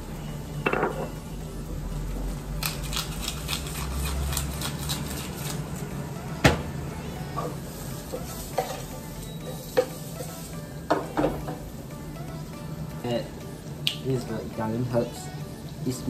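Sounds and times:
wooden spatula scraping a pan: 7.4 - 10.5
prawns sizzling in a frying pan: 7.5 - 11.7.

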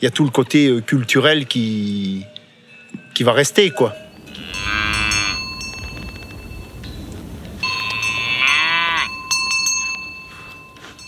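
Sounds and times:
cowbells ringing: 1.8 - 11.0
cows mooing: 4.3 - 5.6, 7.7 - 9.2.

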